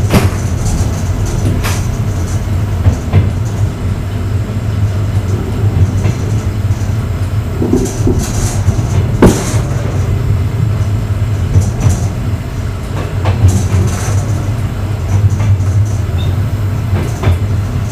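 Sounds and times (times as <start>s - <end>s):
train wheels rumbling on rails: 0.0s - 17.9s.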